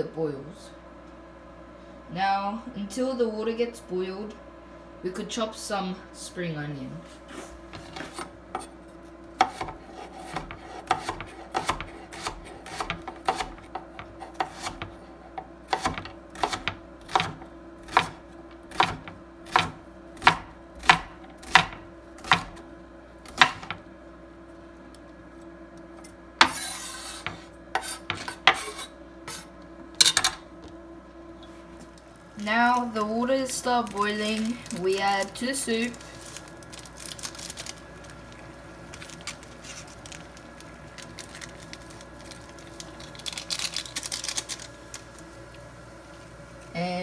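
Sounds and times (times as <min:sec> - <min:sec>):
faint steady hum: 0:00.0 - 0:47.0
knife chopping on wooden board: 0:09.4 - 0:22.6, 0:23.3 - 0:23.8, 0:26.4 - 0:28.9.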